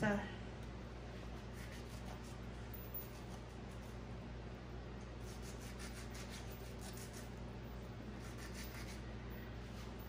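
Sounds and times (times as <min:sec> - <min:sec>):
steady low hum: 0:00.0 - 0:10.0
knife scraping mango: 0:01.4 - 0:04.0, 0:05.2 - 0:07.4, 0:08.1 - 0:09.1.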